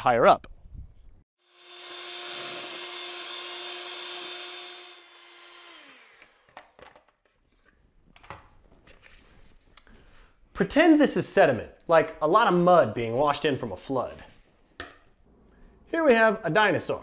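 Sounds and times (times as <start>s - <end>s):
electric hand mixer humming: 1.4s - 6.6s.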